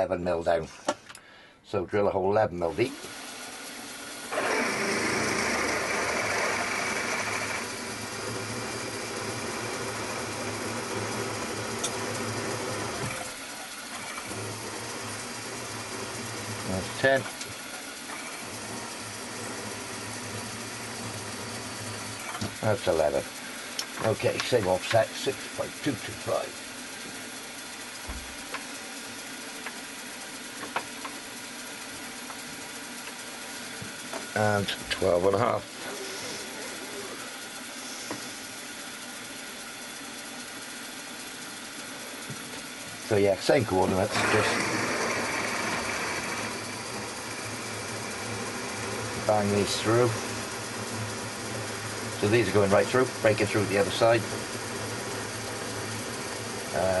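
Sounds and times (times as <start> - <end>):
milling machine hum: 2.6 - 57.0
drill cutting metal: 2.7 - 28.3, 33.6 - 38.5, 43.0 - 57.0.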